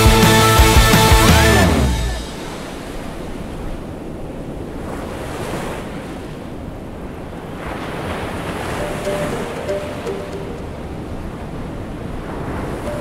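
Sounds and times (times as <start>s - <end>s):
ocean surf washing on beach: 2.2s - 13.0s.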